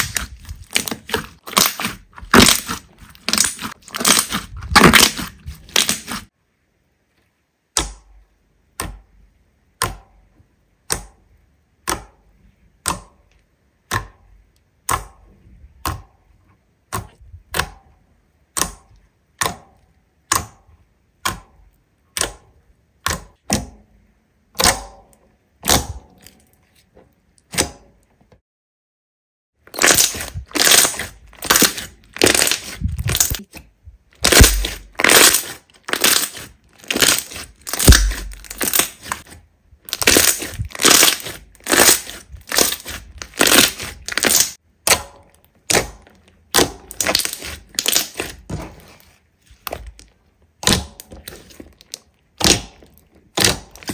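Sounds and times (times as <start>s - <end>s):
slime crunching: 0.0s - 6.3s, 29.6s - 53.9s.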